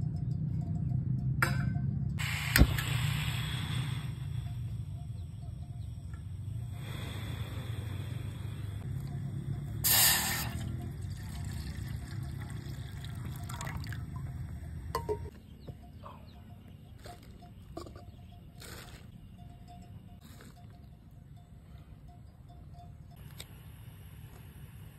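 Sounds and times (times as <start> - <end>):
water pouring into metal pot: 9.9 - 14.3.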